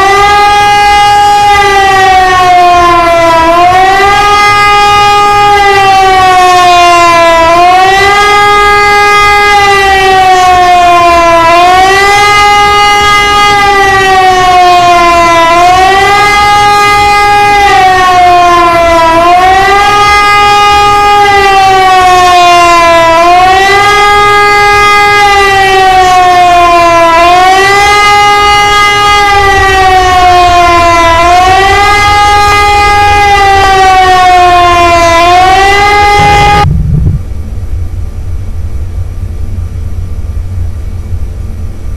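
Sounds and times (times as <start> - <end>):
siren wailing: 0.0 - 37.5
low rumble: 36.0 - 41.9.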